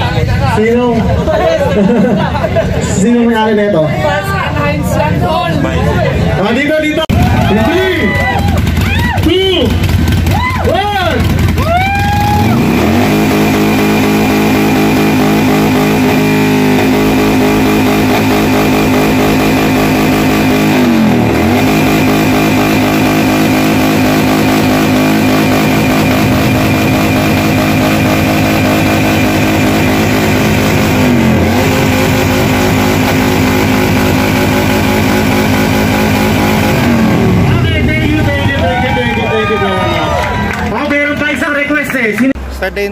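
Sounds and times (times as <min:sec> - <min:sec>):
motorcycle engine at high revs: 0:08.5 - 0:38.8.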